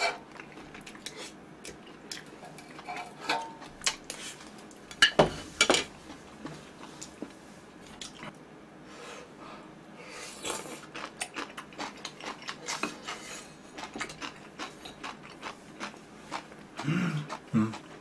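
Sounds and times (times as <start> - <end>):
chewing and mouth sounds: 0.2 - 2.9, 10.4 - 18.0.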